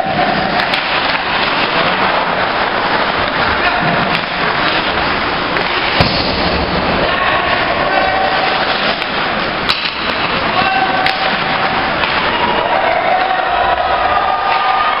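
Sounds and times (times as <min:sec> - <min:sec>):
skates on ice: 0:00.0 - 0:13.5
hockey stick cracking on puck: 0:00.6 - 0:01.7, 0:08.4 - 0:12.3.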